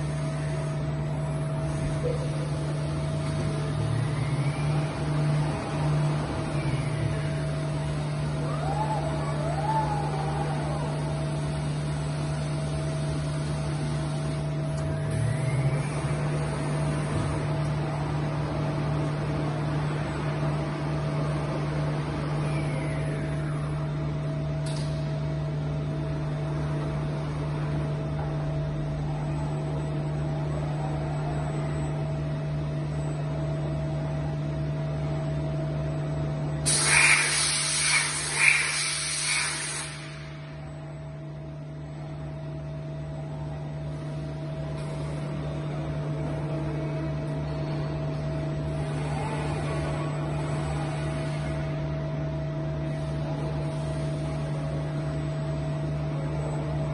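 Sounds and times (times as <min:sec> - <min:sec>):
machine hum: 0:00.0 - 0:56.9
loud hiss: 0:36.6 - 0:40.4.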